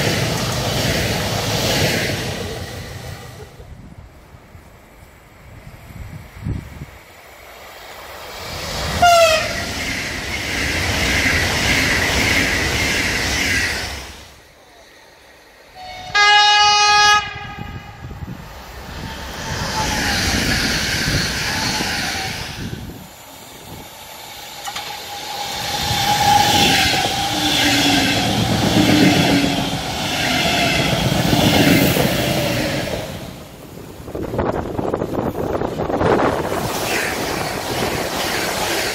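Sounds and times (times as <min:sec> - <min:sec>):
trains passing with rail rumble: 0:00.0 - 0:38.9
train horn blast: 0:09.0 - 0:09.6, 0:15.8 - 0:18.0
locomotive whine: 0:15.7 - 0:34.5.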